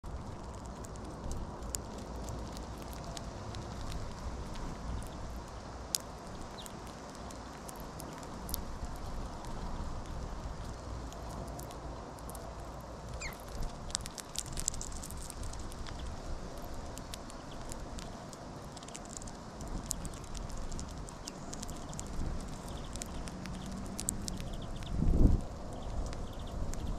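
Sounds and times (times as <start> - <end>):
birds cracking seeds: 0.0 - 26.9
thin bird call: 13.2 - 13.4.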